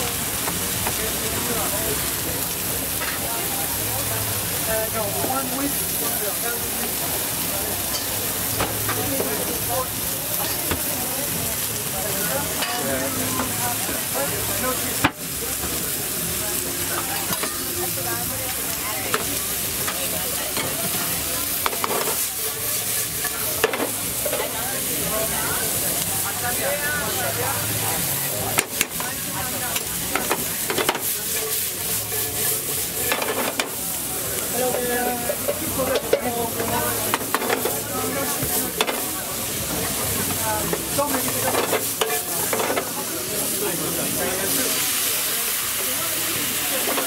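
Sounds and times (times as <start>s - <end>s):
food sizzling in a frying pan: 0.0s - 47.0s
spatula scraping and clacking on pan: 21.6s - 22.3s.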